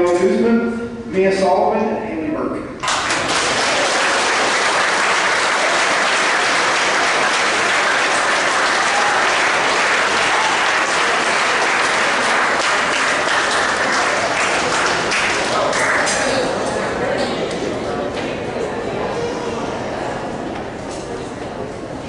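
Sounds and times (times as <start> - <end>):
crowd applauding: 2.8 - 17.1.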